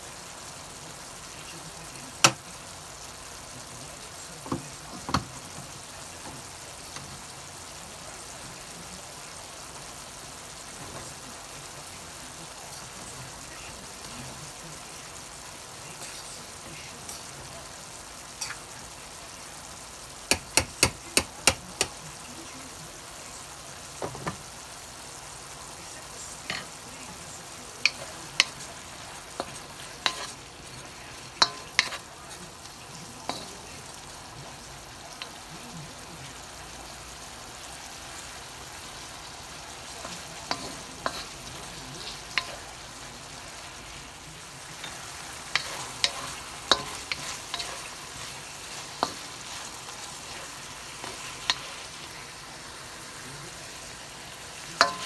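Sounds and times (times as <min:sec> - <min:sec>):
beef sizzling in a wok: 0:00.0 - 0:55.0
spoon tapping and scraping pan: 0:04.4 - 0:05.6, 0:18.4 - 0:18.6, 0:20.3 - 0:22.0, 0:24.0 - 0:24.4, 0:26.4 - 0:26.8, 0:27.8 - 0:32.2, 0:33.3 - 0:33.6, 0:40.0 - 0:42.8, 0:44.7 - 0:52.1, 0:54.8 - 0:55.0.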